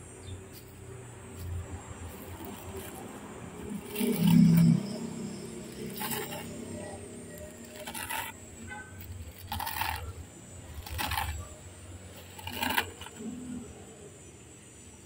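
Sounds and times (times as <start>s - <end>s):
dry leaves crackling: 0.5s - 8.3s.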